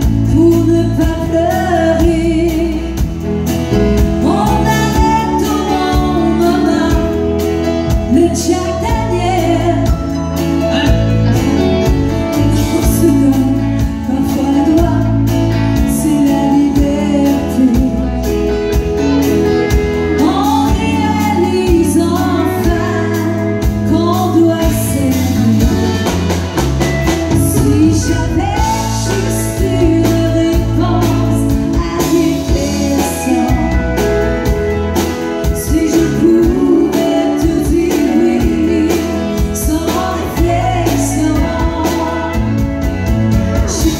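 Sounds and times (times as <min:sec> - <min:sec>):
woman singing country song: 0:00.0 - 0:26.5, 0:27.3 - 0:43.9.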